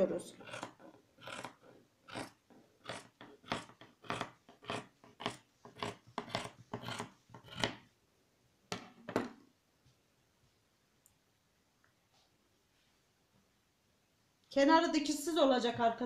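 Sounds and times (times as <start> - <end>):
scissors snipping fabric: 0.4 - 7.8.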